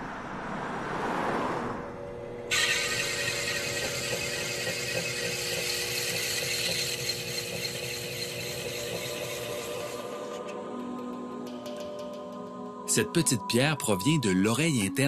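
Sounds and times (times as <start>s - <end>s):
motor whine: 1.8s - 10.6s.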